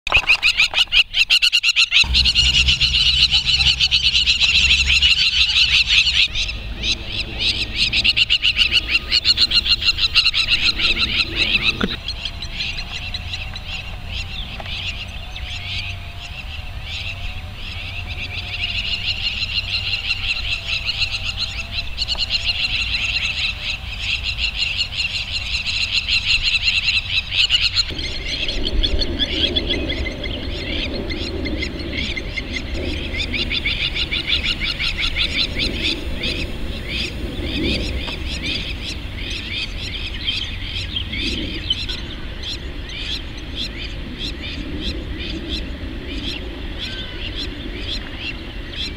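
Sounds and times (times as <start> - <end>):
lapwings alarm calling: 0.1 - 48.9.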